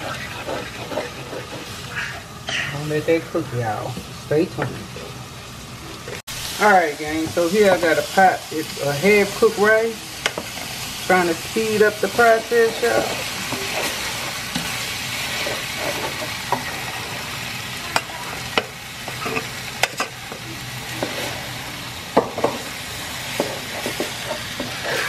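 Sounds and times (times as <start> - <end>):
spoon scraping a pan: 0.0 - 2.2, 10.2 - 25.0
food sizzling in a frying pan: 0.0 - 25.0.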